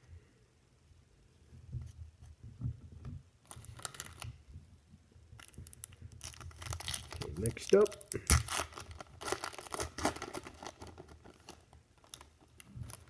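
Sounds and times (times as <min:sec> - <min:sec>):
wrapper crinkling: 0:03.4 - 0:04.4, 0:05.4 - 0:13.0.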